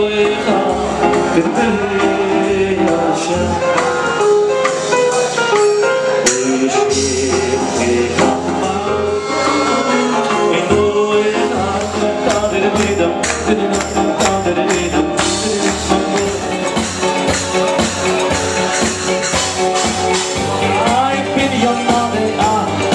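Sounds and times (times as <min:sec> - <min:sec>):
man singing into a microphone: 0:00.0 - 0:17.2, 0:20.4 - 0:22.9
drums: 0:00.0 - 0:22.9
electronic keyboard: 0:00.0 - 0:22.9
electric bass: 0:06.5 - 0:22.9.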